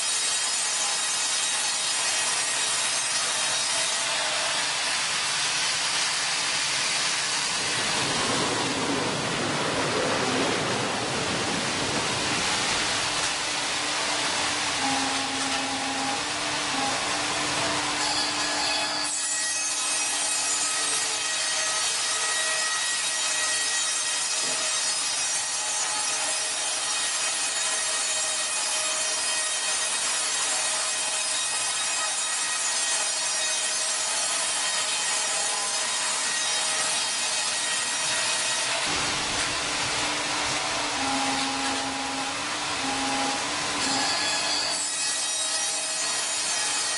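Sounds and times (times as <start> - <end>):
woodworking machine cutting wood: 0.0 - 8.9, 12.8 - 46.9
faint hum: 40.7 - 44.2.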